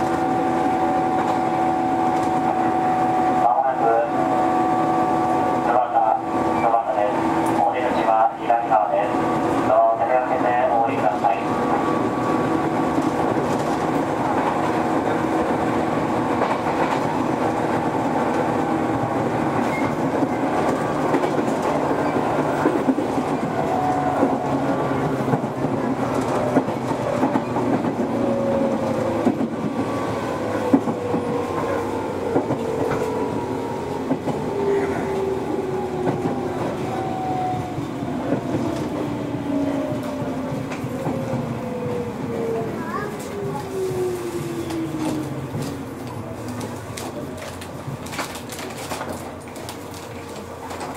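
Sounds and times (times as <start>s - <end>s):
wheels clicking over rail joints: 44.4s - 50.9s.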